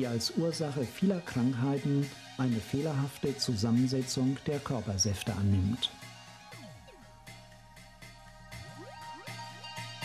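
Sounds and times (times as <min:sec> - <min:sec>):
background music with pulse: 0:00.0 - 0:10.0
rising pitch sweeps: 0:06.6 - 0:10.0.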